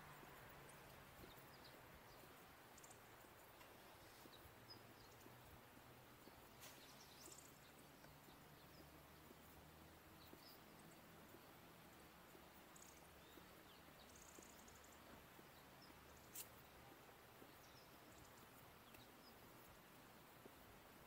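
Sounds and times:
faint high-pitched chirps: 0:06.2 - 0:20.6.

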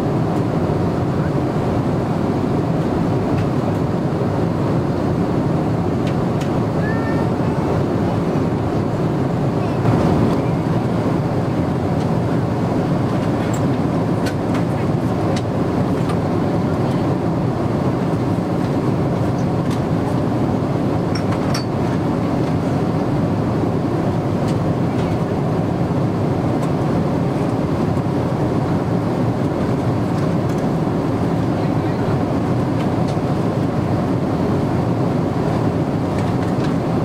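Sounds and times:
airliner cabin noise: 0:00.0 - 0:37.0.

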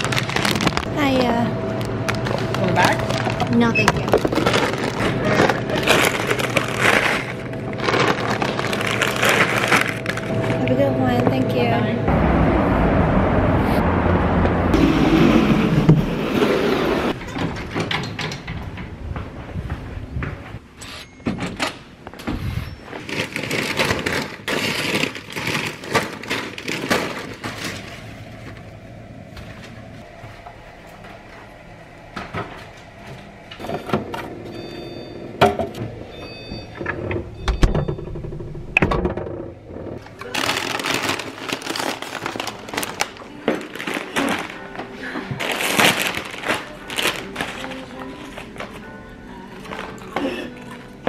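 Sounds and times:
plastic bags crinkling: 0:00.0 - 0:10.6, 0:22.8 - 0:28.4, 0:40.0 - 0:48.9, 0:49.5 - 0:51.0
knocks and clicks in a fridge: 0:35.4 - 0:40.0.

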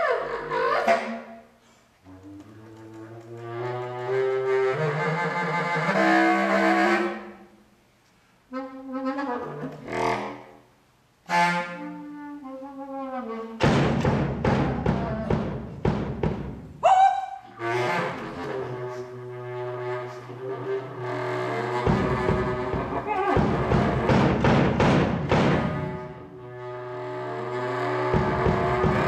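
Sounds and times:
contrabass clarinet long notes: 0:02.0 - 0:07.4, 0:08.5 - 0:10.5, 0:11.3 - 0:13.6, 0:16.8 - 0:24.5, 0:25.3 - 0:29.0.

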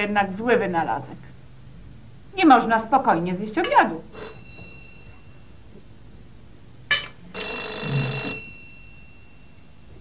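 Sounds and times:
telephone ringing: 0:03.6 - 0:05.6, 0:06.9 - 0:10.0.

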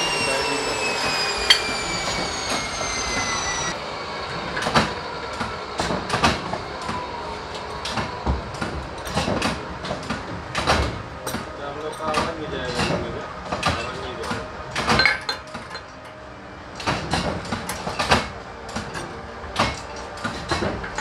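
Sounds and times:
electric saw winding down: 0:00.0 - 0:21.0
metal clanks and knocks: 0:07.8 - 0:15.9.

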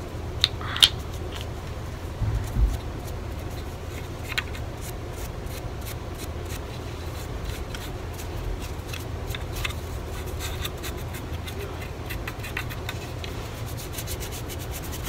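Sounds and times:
low rumble: 0:01.9 - 0:03.7
carving tool scraping wood: 0:02.4 - 0:15.0.

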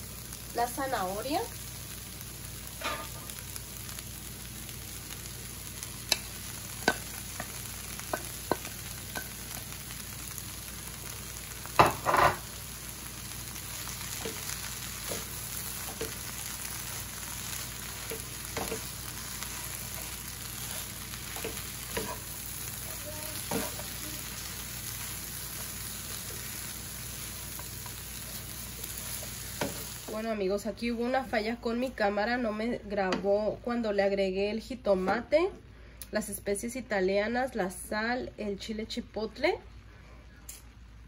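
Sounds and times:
onions sizzling in frying pan: 0:00.0 - 0:35.3
wooden spoon tapping and scraping pan: 0:06.0 - 0:09.4, 0:14.2 - 0:16.2, 0:18.0 - 0:18.9, 0:21.3 - 0:22.3, 0:23.4 - 0:24.0.

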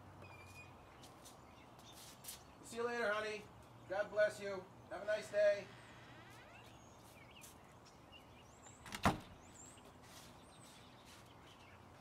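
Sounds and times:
front door thud: 0:08.8 - 0:09.4.

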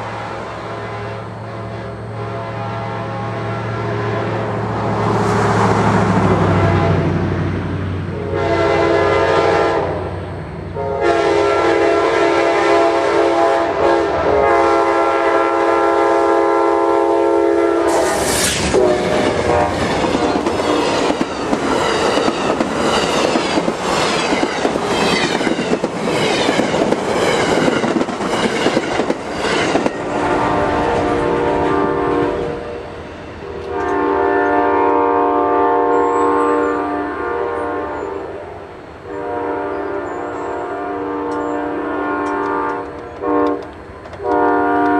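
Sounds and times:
train air horn blasts: 0:00.0 - 0:04.6, 0:06.3 - 0:07.3, 0:08.1 - 0:10.1, 0:10.7 - 0:22.3, 0:29.4 - 0:44.9
train rushing past: 0:00.0 - 0:44.9
wheels clacking over rail joints: 0:18.2 - 0:30.1.

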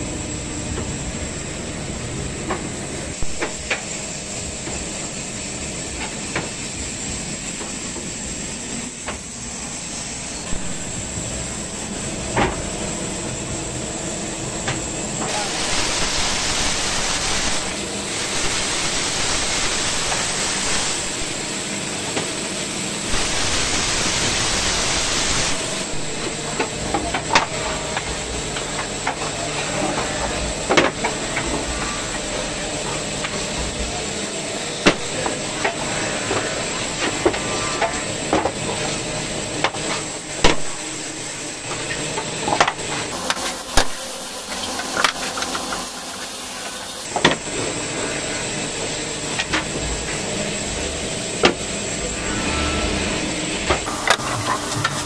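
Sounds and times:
band saw cutting wood: 0:43.1 - 0:47.1.

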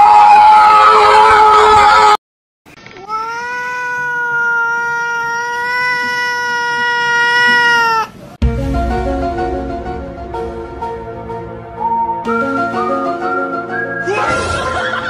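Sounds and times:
cat yowling: 0:03.0 - 0:08.2
music: 0:08.4 - 0:15.0.

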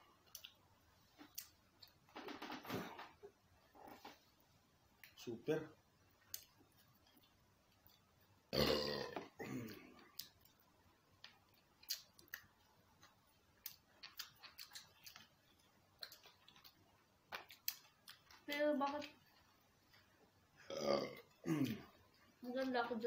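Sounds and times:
chewing smacks and clicks: 0:00.2 - 0:00.6, 0:10.0 - 0:10.6, 0:11.2 - 0:19.2
loud burp: 0:08.5 - 0:09.8, 0:20.6 - 0:21.8.

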